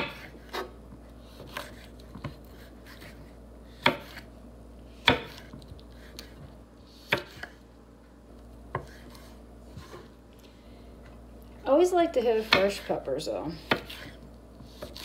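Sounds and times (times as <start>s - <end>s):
knife striking cutting board: 5.0s - 5.6s.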